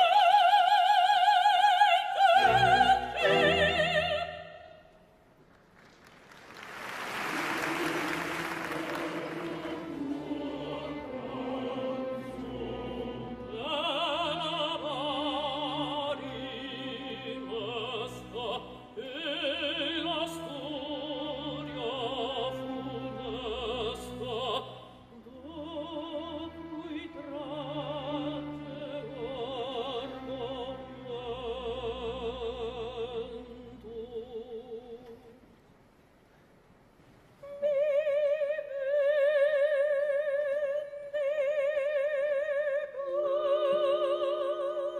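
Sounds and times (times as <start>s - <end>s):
soft orchestral accompaniment: 0.0s - 4.8s, 7.0s - 35.4s
woman singing opera with vibrato: 0.0s - 4.9s, 7.4s - 35.4s, 37.4s - 44.9s.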